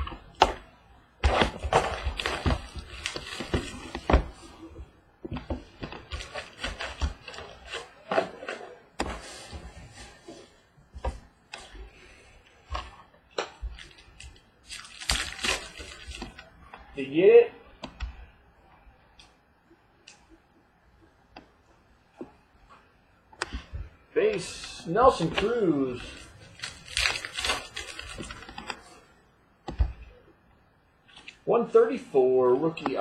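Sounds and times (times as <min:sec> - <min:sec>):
rustling wrappers and cardboard: 0:01.2 - 0:16.6, 0:24.3 - 0:29.1.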